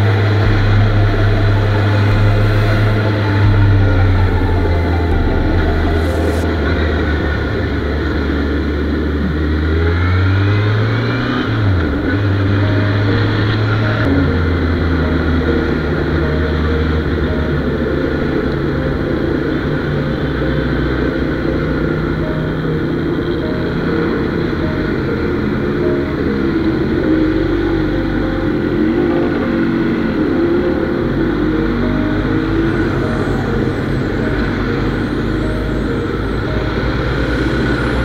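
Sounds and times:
motorcycle engine running: 0:00.0 - 0:21.0.

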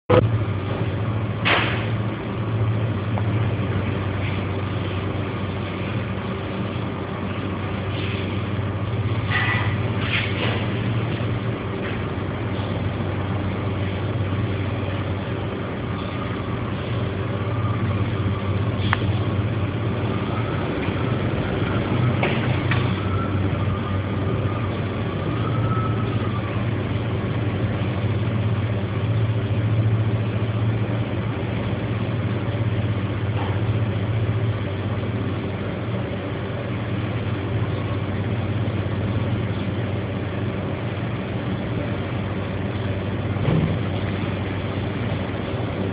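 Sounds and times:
low machine hum: 0:00.1 - 0:45.9
faint wavering whistle: 0:23.0 - 0:24.6, 0:25.2 - 0:26.6.

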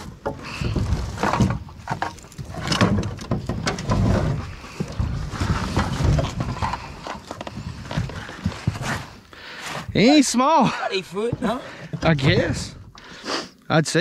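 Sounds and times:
knocks and thumps: 0:00.0 - 0:09.1, 0:11.3 - 0:12.8.

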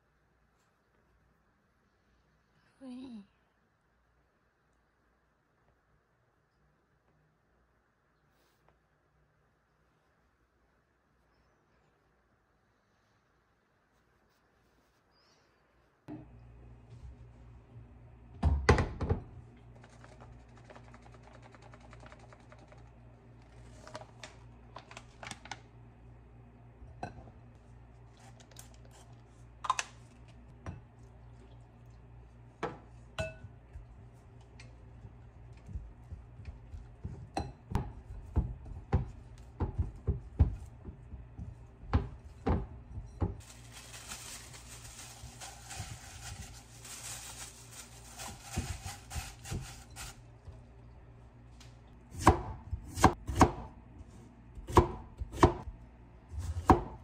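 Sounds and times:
plastic wrap rustling: 0:23.4 - 0:25.7, 0:43.4 - 0:50.2.

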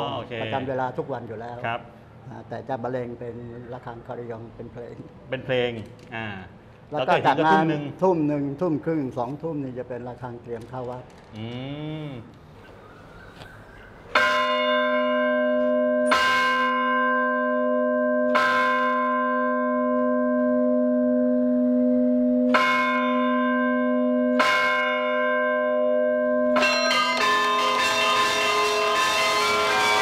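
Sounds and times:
church bell ringing: 0:14.1 - 0:30.0
carillon bells playing a run: 0:26.3 - 0:30.0.

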